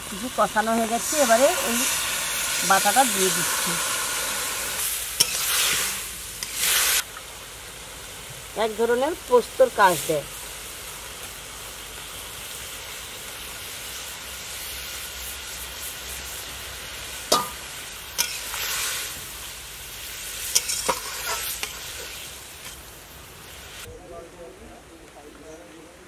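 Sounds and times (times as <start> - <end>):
curry sizzling and simmering: 0.0 - 23.9
metal spatula scraping pan: 20.6 - 21.8.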